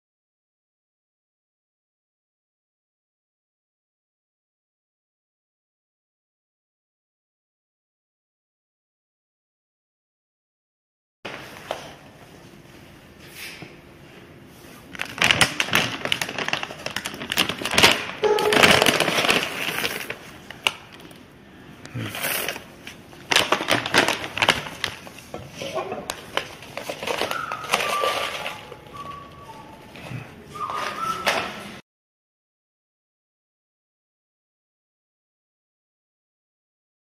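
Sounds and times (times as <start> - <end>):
plastic bag crinkling: 14.8 - 21.2, 22.0 - 29.6.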